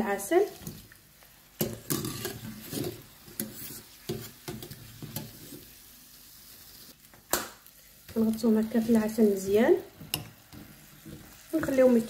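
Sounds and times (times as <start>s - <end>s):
dough sizzling in hot oil: 0.0s - 12.0s.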